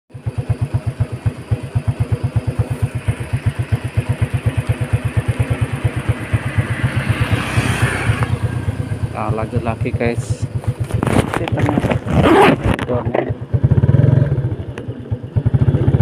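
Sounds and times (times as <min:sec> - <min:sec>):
motorcycle engine idling: 0:00.1 - 0:16.0.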